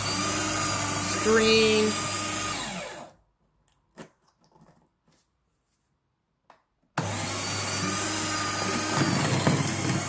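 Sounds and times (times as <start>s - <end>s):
paper shredder motor humming: 0.0s - 3.2s, 7.0s - 10.0s.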